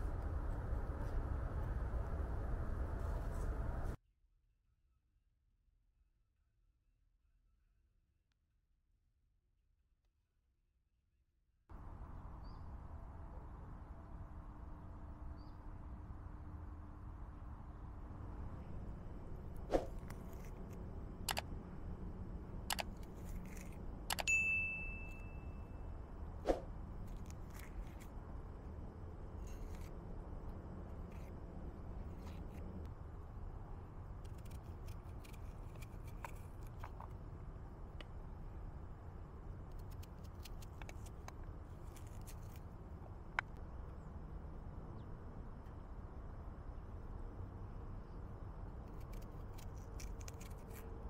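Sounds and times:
low steady rumble: 0:00.0 - 0:04.0, 0:11.7 - 0:51.0
ringing metal clink: 0:24.2 - 0:25.7.

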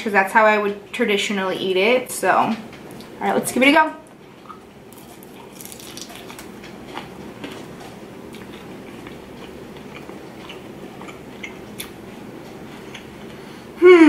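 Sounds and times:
chicken wing crunching: 0:04.5 - 0:12.0.

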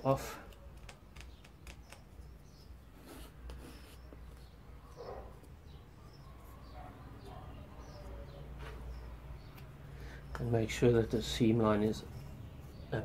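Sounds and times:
sculpting tool scraping plasticine: 0:00.8 - 0:05.4.

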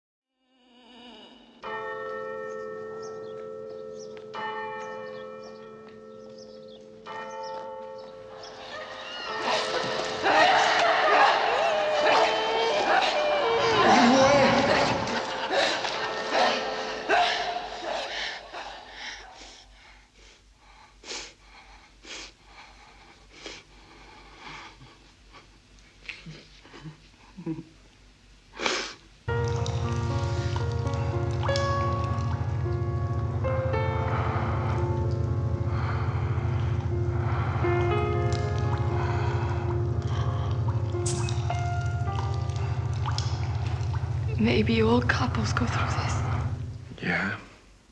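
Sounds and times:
church bell tolling: 0:01.6 - 0:17.8, 0:29.3 - 0:47.0.

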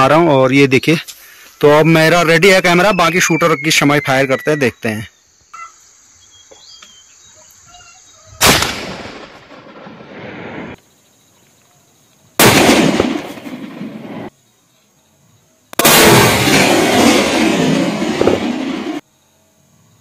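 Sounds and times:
rifle shots with echo: 0:08.4 - 0:10.3, 0:12.4 - 0:14.3, 0:15.8 - 0:19.0.

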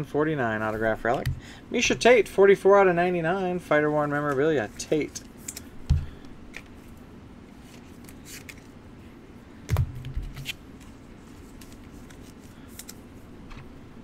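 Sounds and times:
cards rustling and clicking: 0:07.6 - 0:08.8, 0:09.7 - 0:13.7.

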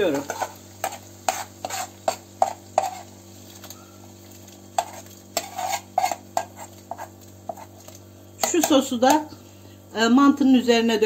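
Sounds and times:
metal spoon scraping a pan: 0:00.0 - 0:03.2, 0:04.8 - 0:08.9.

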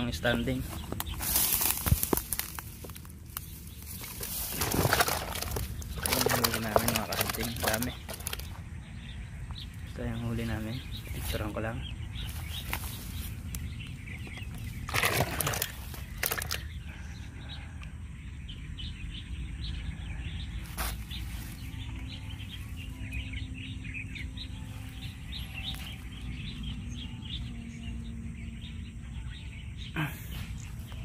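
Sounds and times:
small birds chirping: 0:00.0 - 0:31.0.

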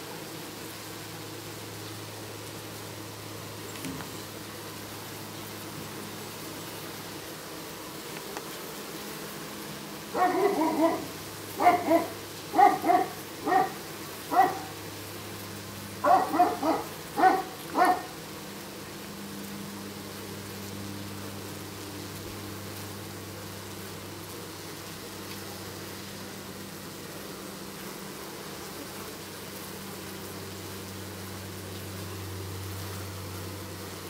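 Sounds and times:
dog barking: 0:10.1 - 0:14.8, 0:16.0 - 0:18.2.

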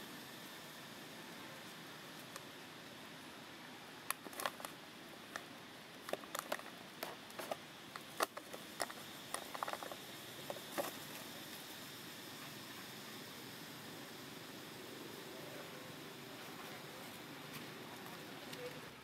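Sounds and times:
steady hiss: 0:00.0 - 0:19.0
plastic bottle crackling: 0:04.1 - 0:04.8, 0:05.4 - 0:11.2.

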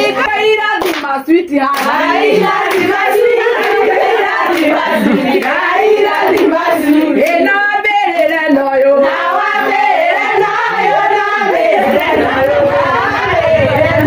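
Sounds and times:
group singing: 0:00.0 - 0:14.0
hand claps: 0:00.8 - 0:08.9.

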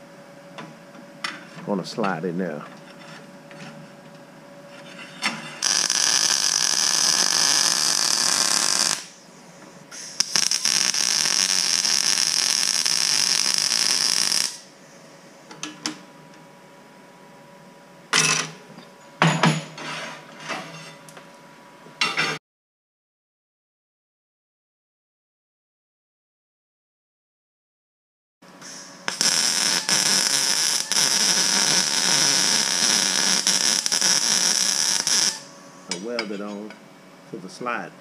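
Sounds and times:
welder arc crackling: 0:05.6 - 0:09.2, 0:10.2 - 0:14.7, 0:29.0 - 0:35.5.

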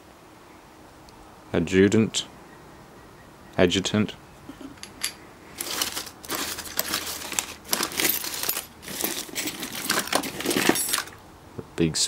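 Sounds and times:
small metal parts clinking: 0:04.8 - 0:11.2
plastic bags crinkling: 0:05.5 - 0:11.2.

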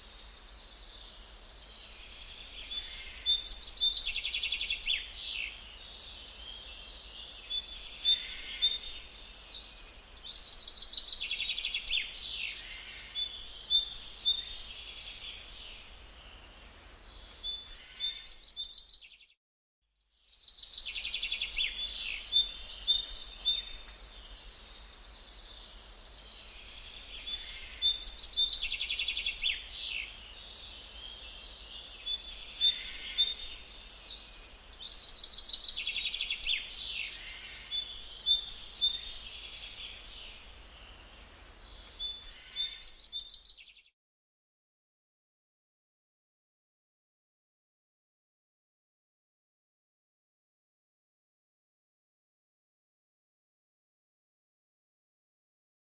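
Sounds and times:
birds chirping and trilling: 0:00.0 - 0:19.3, 0:20.4 - 0:43.9.

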